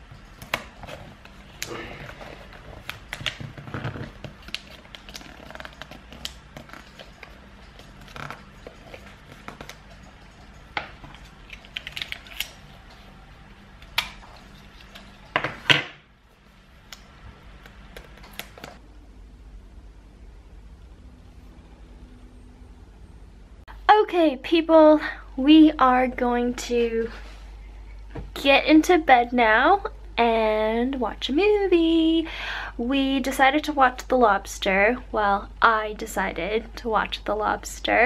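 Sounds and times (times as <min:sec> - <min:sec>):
wrapping paper rustling: 0:00.6 - 0:10.1, 0:11.0 - 0:13.1.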